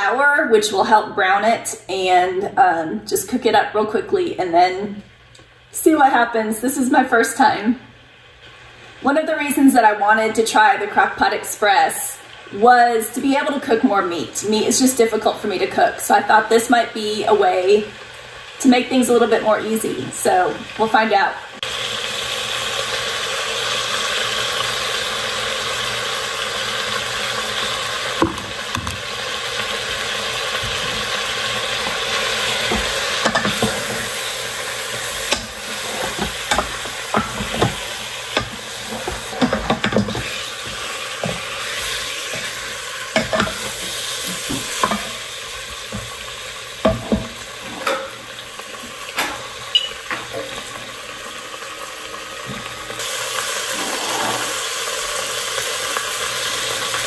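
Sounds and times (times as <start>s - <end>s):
meat sizzling in a pot: 3.2s - 57.0s
utensil scraping and knocking pot: 31.8s - 34.3s, 34.9s - 45.2s, 53.7s - 54.6s.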